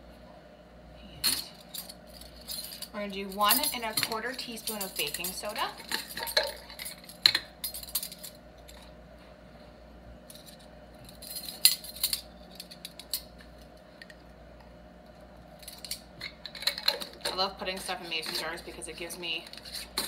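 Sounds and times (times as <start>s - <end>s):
metal spoons clinking on glass jar: 1.3s - 8.4s.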